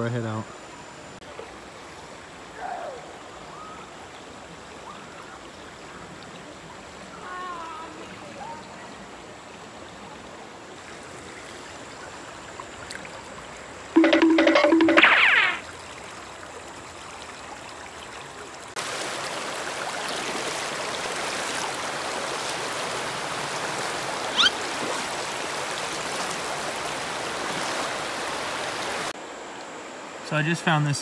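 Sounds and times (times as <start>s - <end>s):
creek water rushing over rocks: 1.4s - 30.6s
background music: 14.0s - 15.1s.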